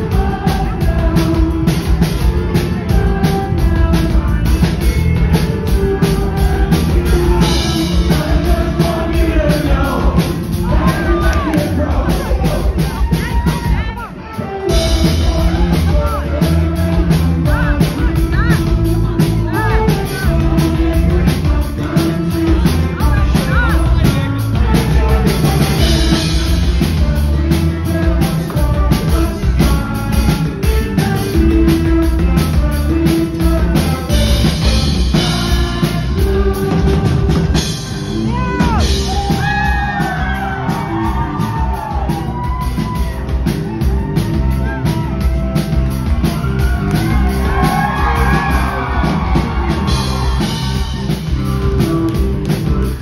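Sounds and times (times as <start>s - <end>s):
bass: 0.0s - 53.0s
drum kit beat: 0.0s - 53.0s
electric guitars: 0.0s - 53.0s.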